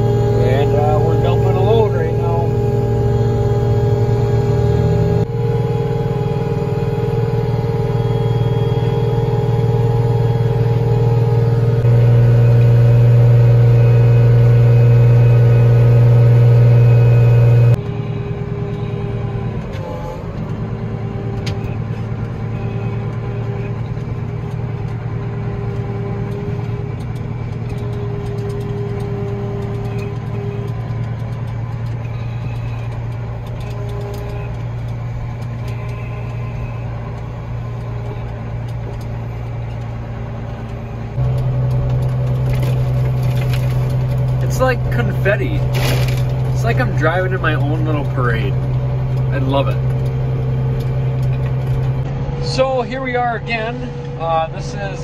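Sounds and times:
engine and road noise in cab: 0:00.0 - 0:55.0
tractor diesel engine under load: 0:00.0 - 0:55.0.

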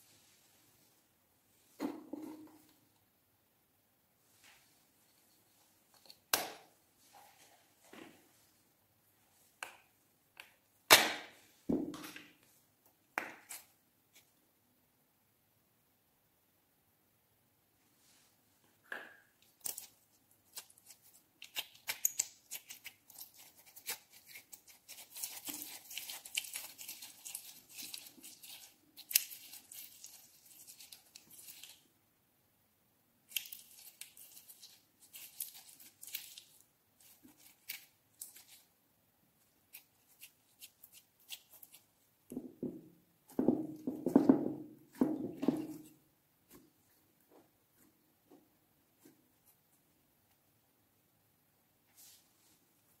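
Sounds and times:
slime squelching: 0:19.4 - 0:31.8, 0:33.3 - 0:38.7.

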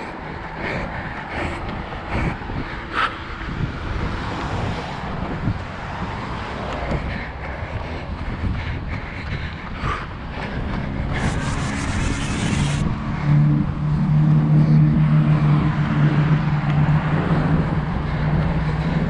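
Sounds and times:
vehicle engine running: 0:04.6 - 0:19.0.

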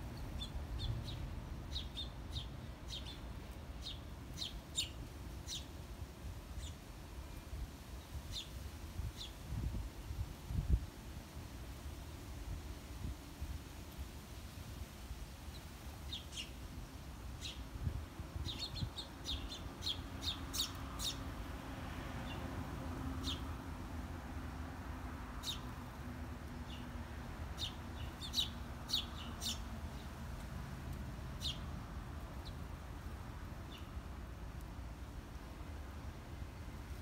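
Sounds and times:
sparrows chirping: 0:00.0 - 0:05.8, 0:06.5 - 0:09.4, 0:15.5 - 0:16.6, 0:17.3 - 0:22.5, 0:23.2 - 0:23.6, 0:25.4 - 0:30.5, 0:31.2 - 0:34.1.

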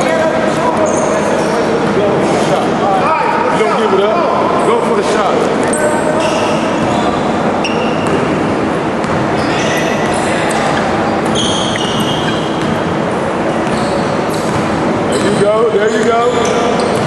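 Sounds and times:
sneakers squeaking on gym floor: 0:00.0 - 0:01.8, 0:05.6 - 0:17.0
crowd and hall noise: 0:00.0 - 0:17.0
basketball bouncing: 0:07.9 - 0:08.4, 0:09.0 - 0:17.0.

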